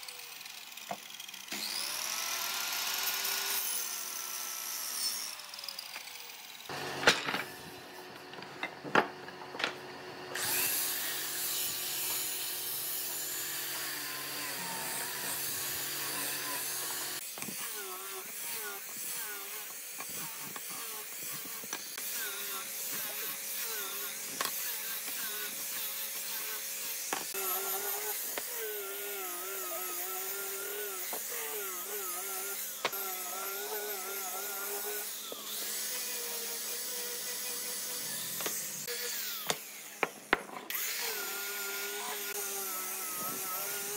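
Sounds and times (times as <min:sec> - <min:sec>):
angle grinder sanding wood: 0:10.4 - 0:43.9.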